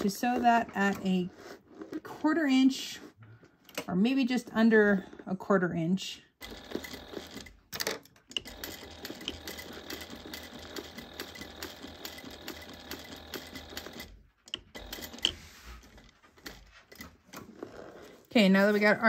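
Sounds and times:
industrial sewing machine stitching: 6.4 - 18.2.

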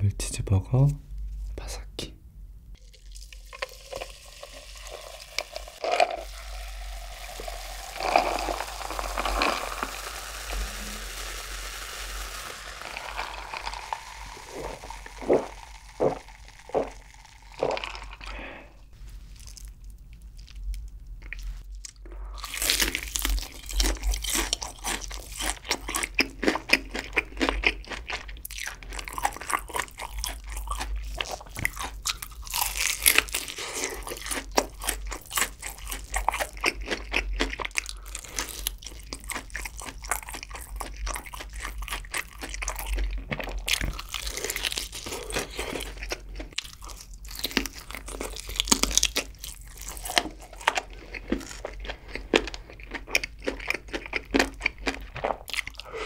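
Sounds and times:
cola fizzing over ice: 2.8 - 18.3
crunching fried chicken: 2.8 - 18.6, 19.4 - 56.0
ice clinking: 3.0 - 18.3.

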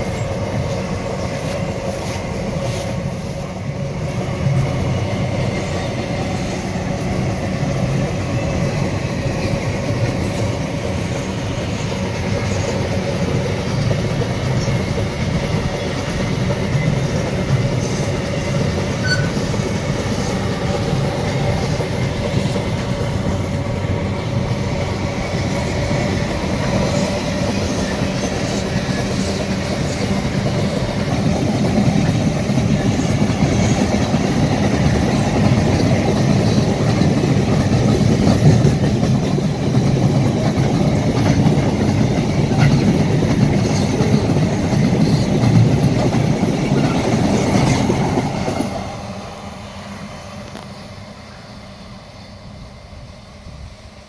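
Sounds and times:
freight wagons rolling on rails: 0.0 - 48.8.

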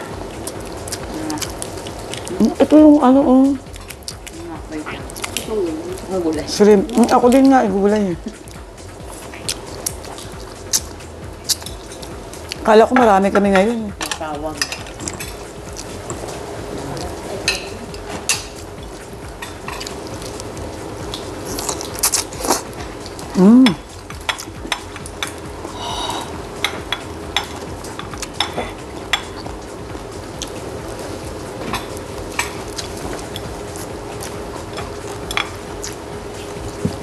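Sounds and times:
chewing and mouth noises: 0.1 - 2.7, 3.6 - 7.6, 8.2 - 12.7, 14.9 - 37.0
cutlery clicking on plates: 13.0 - 15.9, 17.4 - 20.0, 23.7 - 25.5, 26.6 - 29.5, 34.8 - 35.6.

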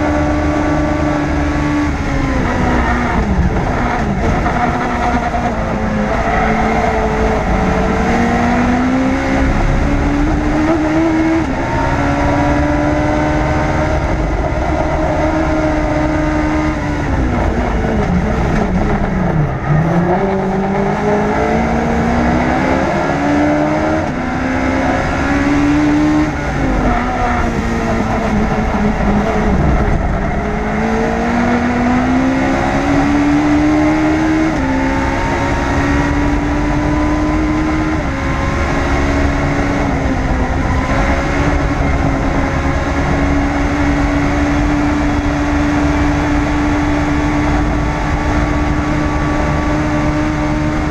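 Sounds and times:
race car engine shifting gears: 0.0 - 50.9
wind and road rumble: 0.0 - 50.9.

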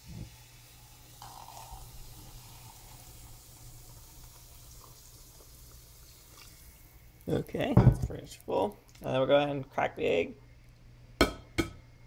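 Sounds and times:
liquid nitrogen hissing: 0.0 - 9.2.

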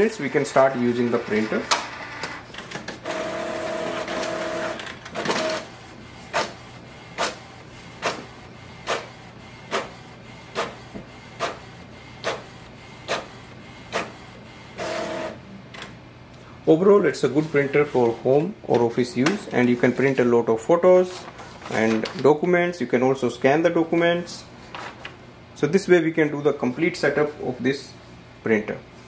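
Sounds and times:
printer motor whirring: 0.2 - 16.0.

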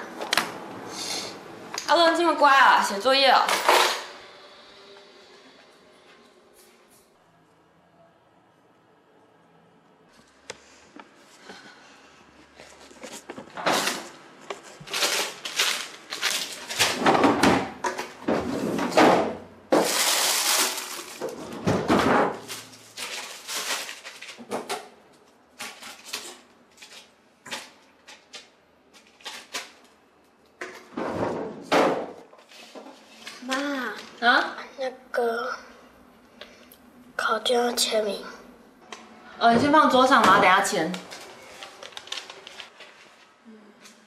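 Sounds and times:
kitchen knocks and clatters: 3.4 - 4.1, 13.2 - 22.6, 24.3 - 25.0, 30.6 - 33.4, 39.5 - 40.7.

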